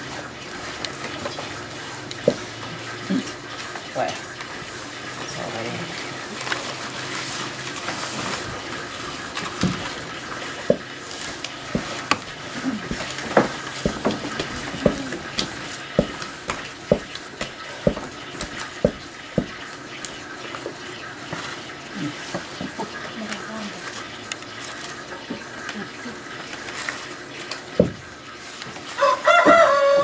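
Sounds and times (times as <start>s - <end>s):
wooden paddle knocking against pot: 2.2s - 2.5s, 11.7s - 12.3s, 12.9s - 19.6s.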